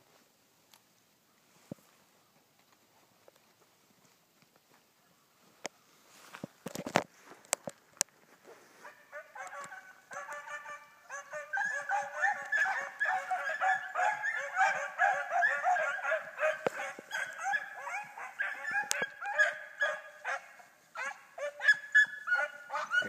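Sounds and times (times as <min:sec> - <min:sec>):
pack of dogs baying: 0:08.8 - 0:23.0.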